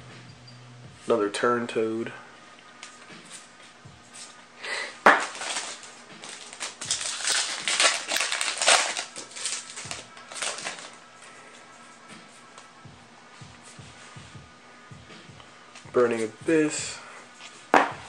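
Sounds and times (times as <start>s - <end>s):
foil pack tearing and crinkling: 5.1s - 11.0s
foil snapping: 5.1s - 11.0s.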